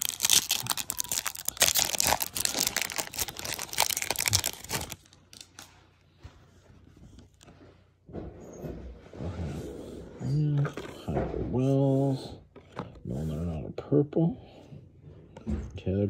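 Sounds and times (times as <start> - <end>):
foil wrapper crinkling and tearing: 0.0 - 5.7
handling of cards: 0.0 - 7.6.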